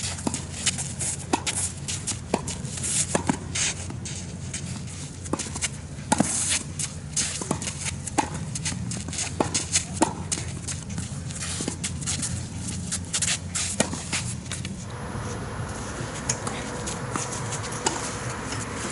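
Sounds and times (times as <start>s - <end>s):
racket striking tennis ball: 13.6s - 18.9s.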